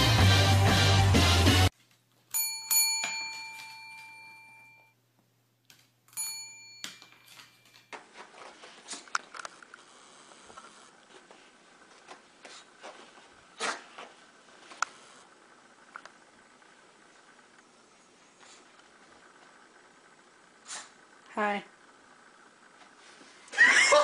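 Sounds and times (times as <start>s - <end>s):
desk service bell dinging: 2.3s - 5.0s, 6.1s - 7.9s.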